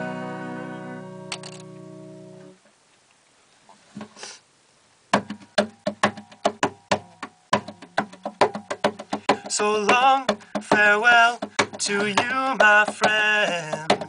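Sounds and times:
acoustic guitar chord ringing: 0:00.0 - 0:02.6
percussive guitar strumming: 0:00.0 - 0:02.6, 0:05.2 - 0:14.0.

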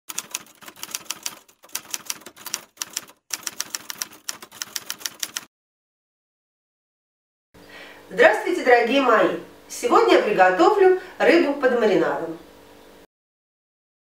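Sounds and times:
typewriter keys clacking: 0:00.1 - 0:05.5.

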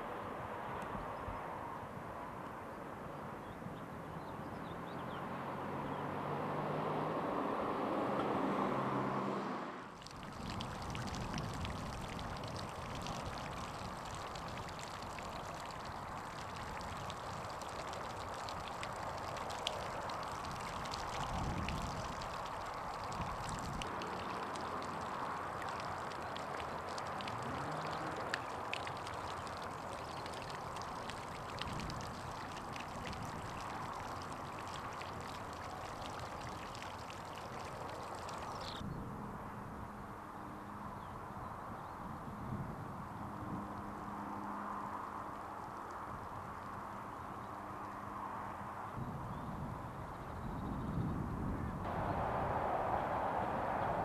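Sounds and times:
fountain splashing: 0:09.9 - 0:38.8, 0:44.1 - 0:48.1
droplet patter: 0:10.0 - 0:38.8.

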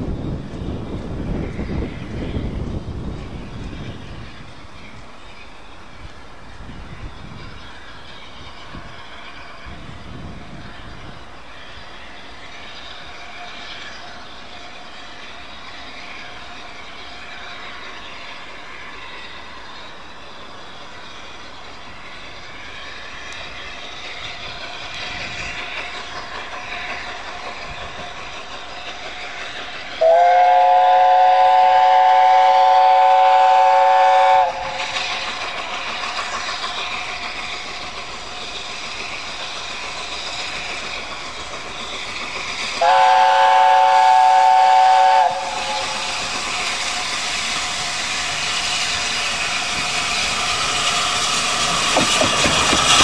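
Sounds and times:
steam locomotive approaching: 0:00.0 - 0:53.0
steam chime whistle: 0:29.9 - 0:35.3, 0:42.7 - 0:53.0.

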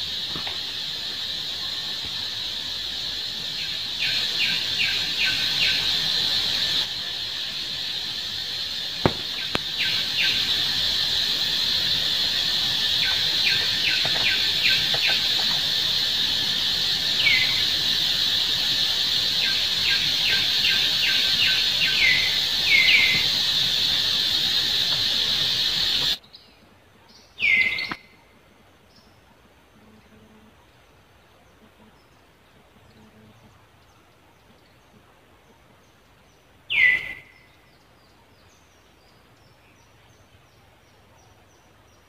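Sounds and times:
falling chirps: 0:00.0 - 0:26.2
high-pitched insect drone: 0:00.0 - 0:26.2.

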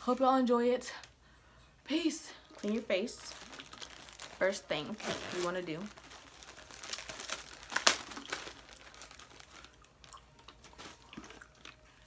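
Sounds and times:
crinkling and rustling: 0:02.4 - 0:11.8.

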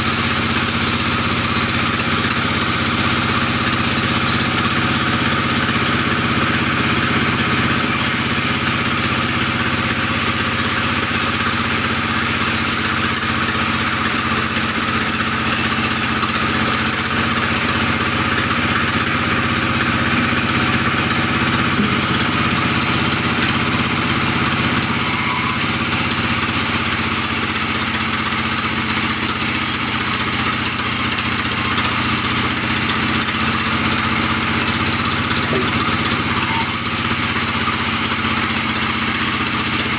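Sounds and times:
band sawmill running: 0:00.0 - 0:39.9
saw blade cutting hiss: 0:07.8 - 0:17.7, 0:18.3 - 0:32.0, 0:35.3 - 0:39.9.

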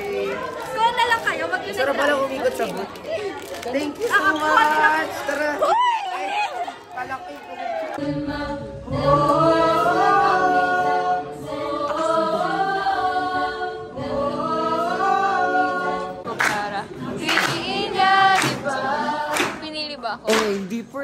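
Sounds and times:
audience shrieking and cheering: 0:04.2 - 0:08.0
choir singing a cappella: 0:08.0 - 0:20.2.

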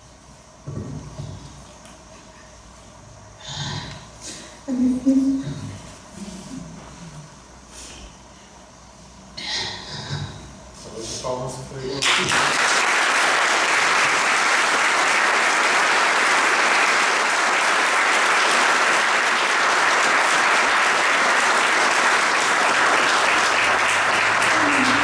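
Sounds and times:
congregation applauding: 0:12.0 - 0:25.0.

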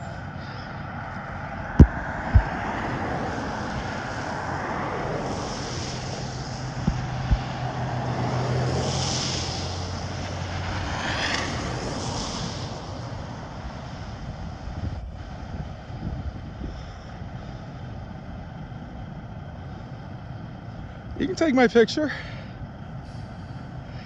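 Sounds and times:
diesel truck engine running: 0:00.0 - 0:24.0
short low thumps: 0:01.7 - 0:02.6, 0:06.8 - 0:07.6
tyres hissing on slushy road: 0:02.0 - 0:14.1, 0:21.2 - 0:24.0.

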